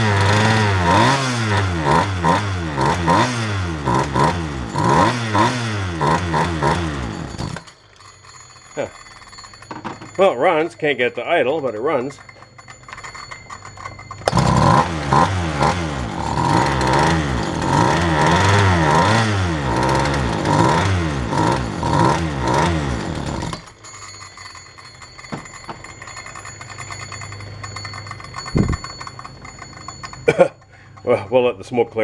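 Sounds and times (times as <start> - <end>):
chainsaw engine revving: 0.0 - 7.8, 14.1 - 23.8.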